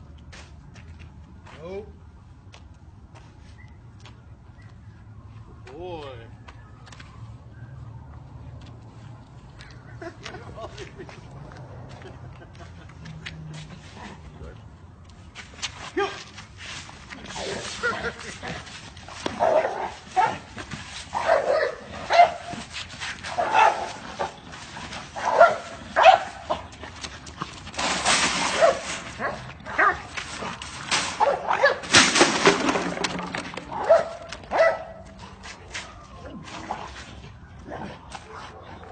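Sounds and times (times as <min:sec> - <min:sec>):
dog barking: 0:21.2 - 0:22.4, 0:23.4 - 0:23.9, 0:25.2 - 0:26.4, 0:28.6 - 0:30.0, 0:33.8 - 0:35.0.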